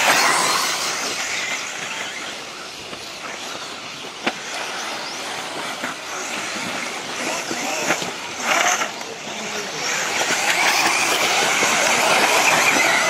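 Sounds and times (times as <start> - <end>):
tyres on dirt: 0.0 - 13.0
electric motor whine: 4.4 - 13.0.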